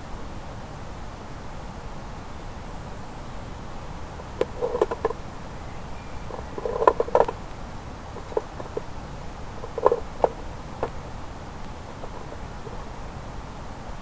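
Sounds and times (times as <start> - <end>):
knocks and rattles of metal traps: 6.3 - 7.3, 8.2 - 8.9, 9.6 - 10.9.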